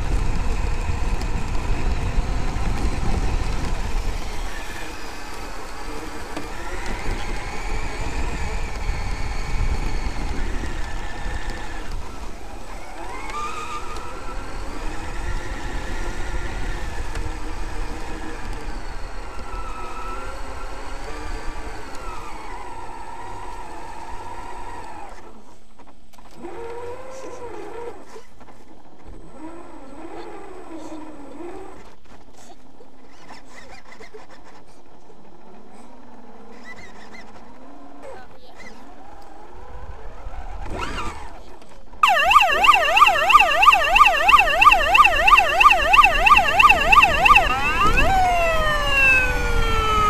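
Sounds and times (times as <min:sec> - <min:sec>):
toy truck electric motor whining: 0:03.0 - 0:24.7, 0:42.2 - 0:50.0.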